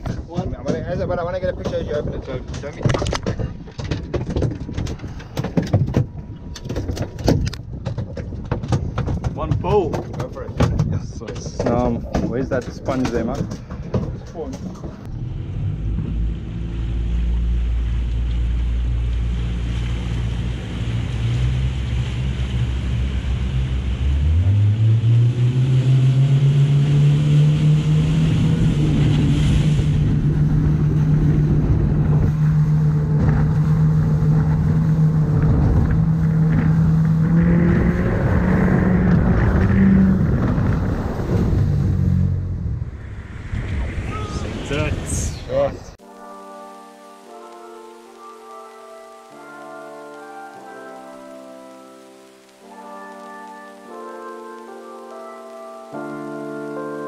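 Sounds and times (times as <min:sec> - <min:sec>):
wind and water rushing: 0:00.0 - 0:57.0
boat engine revving: 0:14.7 - 0:45.6.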